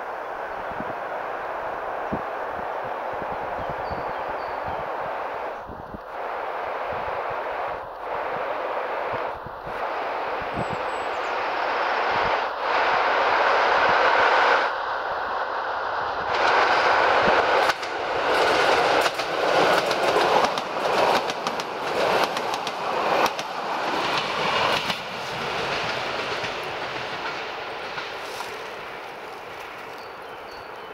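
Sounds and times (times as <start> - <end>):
electric train passing: 0.0 - 30.9
wheels clacking over rail joints: 16.3 - 30.9.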